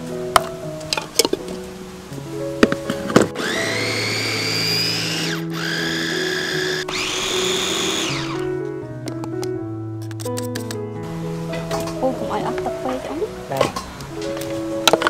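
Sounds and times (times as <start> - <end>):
food chopper motor whine: 3.4 - 8.4.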